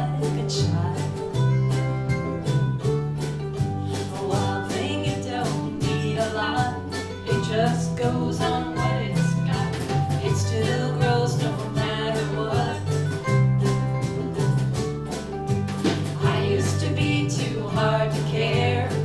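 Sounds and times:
woman singing: 0:00.0 - 0:01.4, 0:03.9 - 0:13.1, 0:16.2 - 0:19.0
acoustic guitar: 0:00.0 - 0:19.0
bass guitar: 0:00.0 - 0:19.0
strummed ukuleles: 0:00.0 - 0:19.0.

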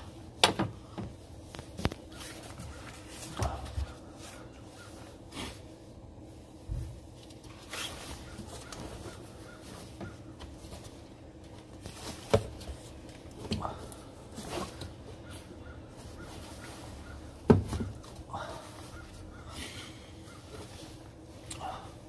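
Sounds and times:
plastic air duct clicks and knocks: 0:00.4 - 0:02.0, 0:17.4 - 0:18.2.

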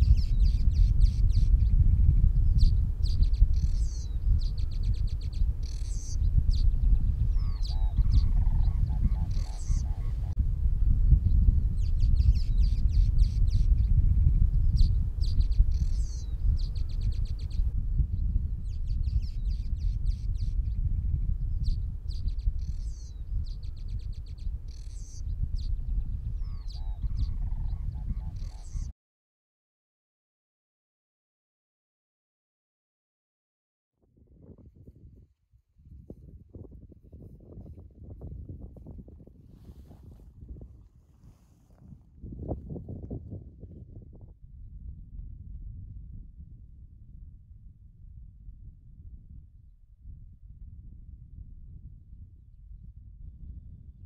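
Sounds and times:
small birds chirping: 0:00.0 - 0:10.4, 0:11.2 - 0:28.9
wind rumbling on microphone: 0:00.0 - 0:28.9, 0:34.0 - 0:54.0
birds chirping and chattering: 0:02.6 - 0:10.3, 0:26.4 - 0:28.9
bird croaking: 0:07.4 - 0:10.3.

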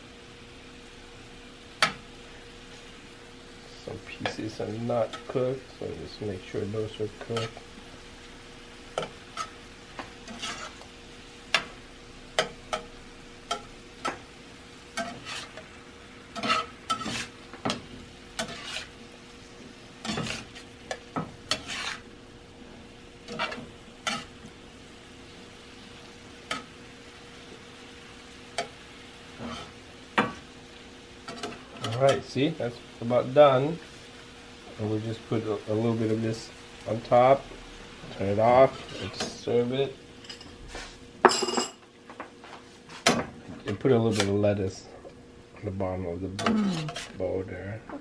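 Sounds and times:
shrimp sizzling in sauce: 0:00.0 - 0:47.7
metal spatula scraping frying pan: 0:09.0 - 0:10.9, 0:14.9 - 0:15.6, 0:16.3 - 0:19.0, 0:20.0 - 0:22.1, 0:23.2 - 0:24.4, 0:29.4 - 0:30.3, 0:38.6 - 0:39.4, 0:46.4 - 0:47.2.

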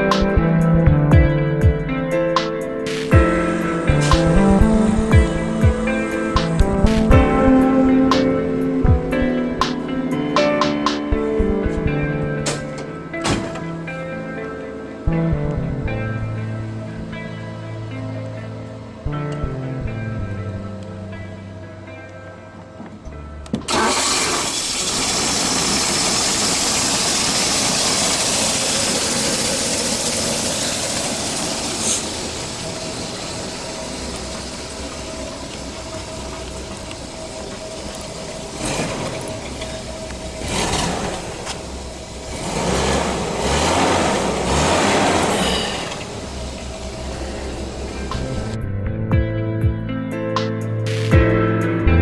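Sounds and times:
car engine revving: 0:00.0 - 0:14.4, 0:23.6 - 0:49.0.

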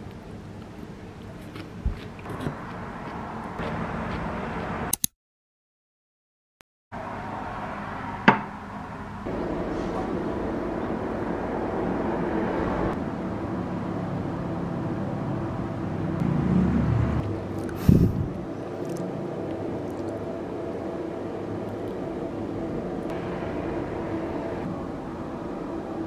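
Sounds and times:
sharp click: 0:04.9 - 0:05.1
steady background noise: 0:07.0 - 0:26.0.

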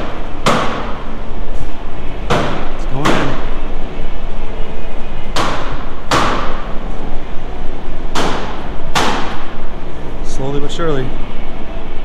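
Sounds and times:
metal panels banging with echo: 0:02.2 - 0:03.6.

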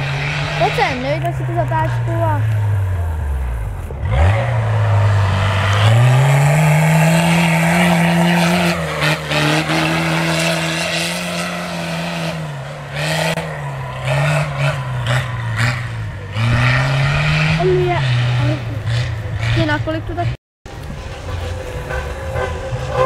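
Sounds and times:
tractor engine revving hard: 0:00.0 - 0:20.4.

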